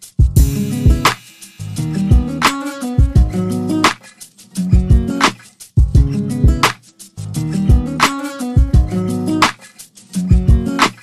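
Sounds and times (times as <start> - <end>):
plucked guitar over drum beat: 0.0 - 11.0
low kick drum thumps: 0.2 - 1.1, 2.1 - 2.4, 3.0 - 3.4, 4.8 - 5.1, 5.8 - 6.7, 7.7 - 7.9, 8.6 - 8.9
sharp snare hits: 0.4 - 3.2, 6.6 - 6.9, 9.4 - 9.8, 10.8 - 11.0.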